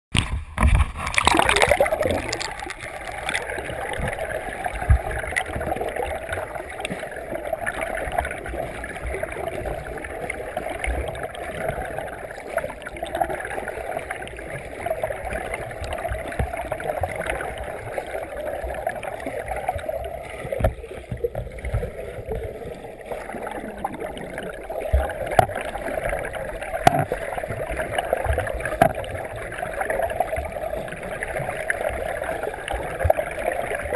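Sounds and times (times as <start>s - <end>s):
low underwater thumps: 0.1s - 6.4s, 19.7s - 29.4s
muffled underwater churning: 0.1s - 33.9s.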